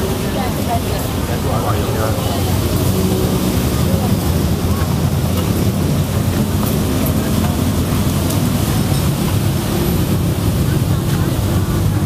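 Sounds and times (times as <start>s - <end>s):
indistinct chatter: 0.0s - 12.0s
low crowd rumble: 0.0s - 12.0s.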